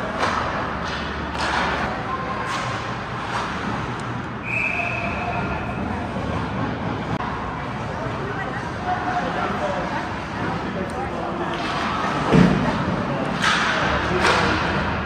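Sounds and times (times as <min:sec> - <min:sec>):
hockey sticks and puck clacking: 0:00.0 - 0:04.3, 0:10.8 - 0:15.0
echoing hall noise: 0:00.0 - 0:15.0.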